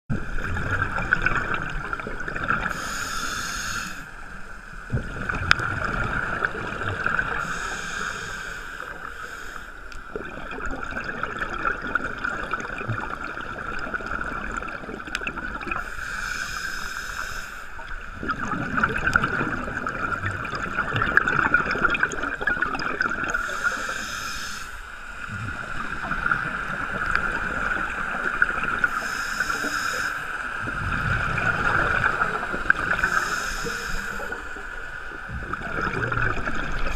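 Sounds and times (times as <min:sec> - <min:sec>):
exhaled bubbles gurgling: 0:00.1 - 0:09.3, 0:10.1 - 0:16.8, 0:17.8 - 0:24.3, 0:25.1 - 0:36.9
scuba regulator inhalation hiss: 0:02.6 - 0:04.7, 0:07.3 - 0:09.9, 0:15.8 - 0:17.8, 0:23.3 - 0:25.1, 0:28.8 - 0:30.6, 0:32.9 - 0:34.6.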